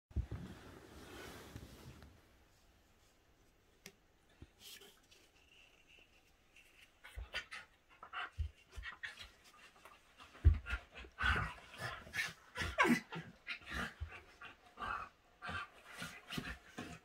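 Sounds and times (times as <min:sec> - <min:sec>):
dogs panting and snuffling: 0:07.0 - 0:17.0.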